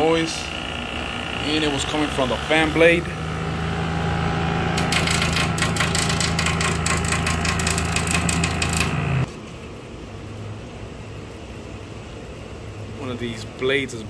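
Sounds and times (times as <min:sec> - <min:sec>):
fan running with loud hum: 0:00.0 - 0:14.0
fan blade clicking rattle: 0:04.7 - 0:09.3.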